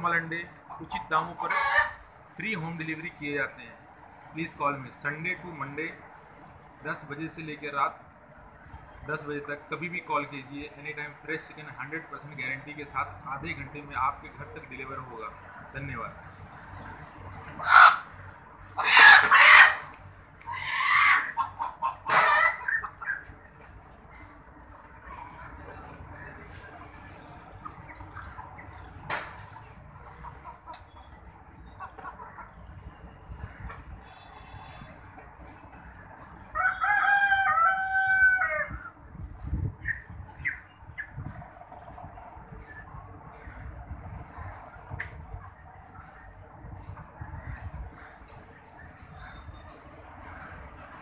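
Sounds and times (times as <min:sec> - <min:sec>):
chicken crowing: 0:17.6 - 0:18.1, 0:18.8 - 0:19.9, 0:20.5 - 0:23.2, 0:36.5 - 0:38.9
rooster squawking in distress: 0:18.8 - 0:19.9, 0:20.5 - 0:21.4, 0:36.6 - 0:38.9.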